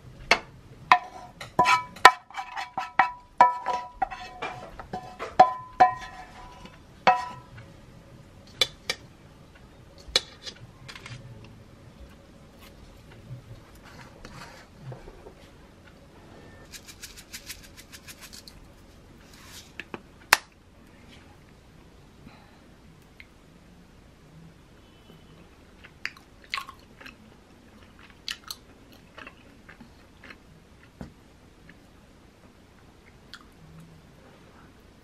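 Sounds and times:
cookware and dishes knocking: 0.3s - 6.2s, 7.1s - 7.5s
food scraped from frying pan: 1.0s - 7.4s.

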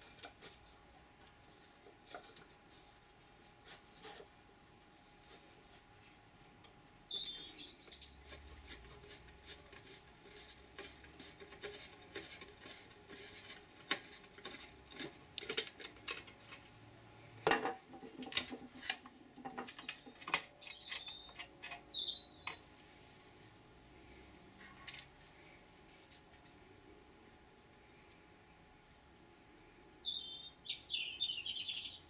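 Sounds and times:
clicks and scraping of metal and plastic: 0.0s - 2.9s, 8.2s - 16.7s, 17.5s - 22.6s.

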